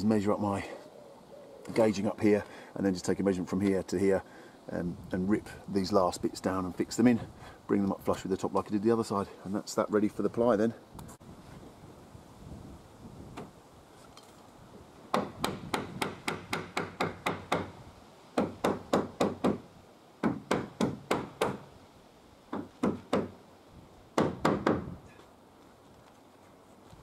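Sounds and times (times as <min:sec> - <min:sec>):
hammer driving nails into wood: 0:15.1 - 0:17.7, 0:18.4 - 0:19.6, 0:20.2 - 0:21.7, 0:24.2 - 0:25.0.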